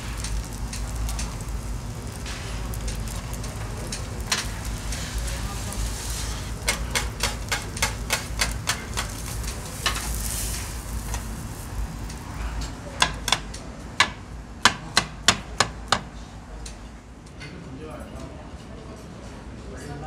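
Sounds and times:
sizzling hiss: 0.0 - 13.3
metal scrapers clicking on griddle: 0.0 - 14.9.

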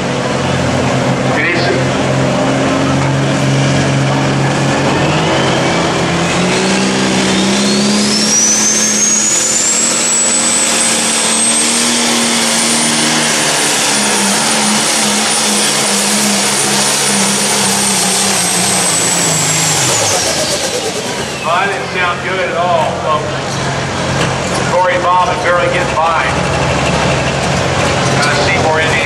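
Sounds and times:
diesel tractor engine running hard: 0.0 - 29.0
turbo whine: 1.4 - 22.3.

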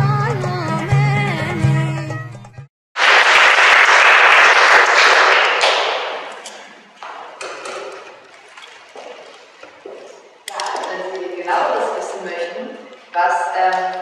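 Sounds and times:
audience applauding: 3.0 - 6.6
scattered knocks: 5.7 - 8.2.

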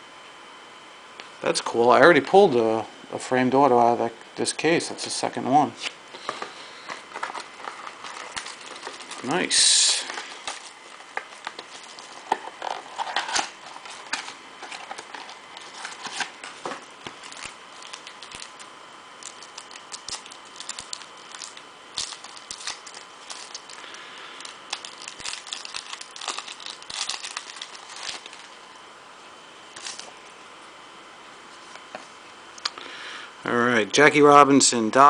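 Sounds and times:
plastic wrapping crinkling and tearing: 6.2 - 28.6, 29.7 - 30.1.

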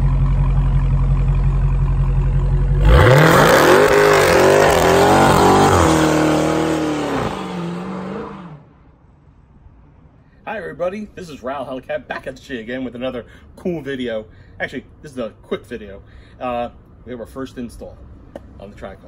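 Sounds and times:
car engine idling and revving: 0.0 - 10.1.

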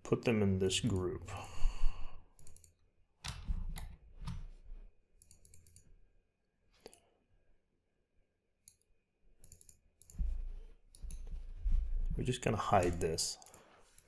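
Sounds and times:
computer mouse clicking: 2.4 - 4.4, 5.2 - 5.9, 8.6 - 10.2, 10.9 - 11.3, 12.7 - 14.0.

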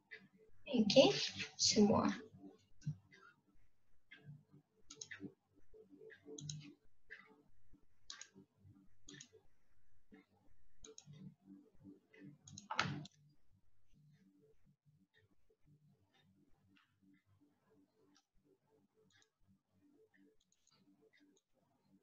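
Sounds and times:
computer mouse clicks: 4.9 - 5.2, 6.4 - 7.2, 8.1 - 8.4, 9.0 - 9.4, 10.8 - 11.2, 12.4 - 13.2, 20.4 - 20.8.

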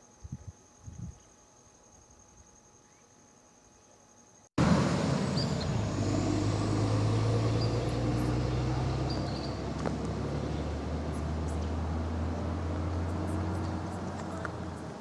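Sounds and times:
vehicle engine idling: 4.6 - 15.0
bird chirps: 5.3 - 6.2, 7.3 - 9.6.

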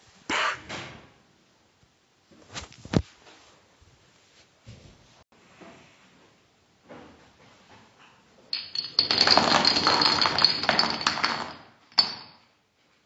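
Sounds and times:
dominoes clattering on tile floor: 8.6 - 12.2.

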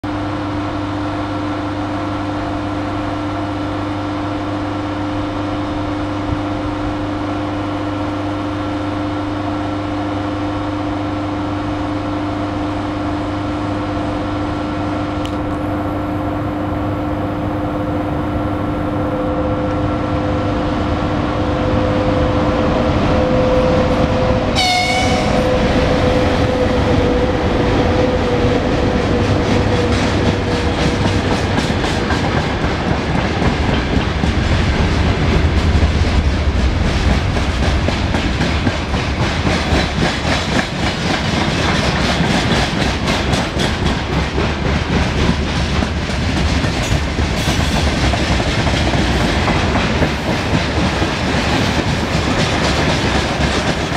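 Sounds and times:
electric locomotive humming: 0.0 - 53.9
locomotive horn blast: 0.2 - 30.6
train wagons rail noise: 12.8 - 53.9.

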